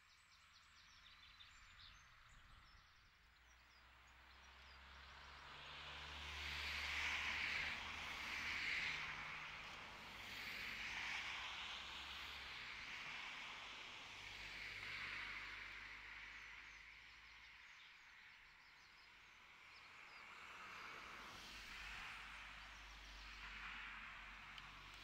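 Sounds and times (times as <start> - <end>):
soft outdoor rush: 0.2 - 25.0.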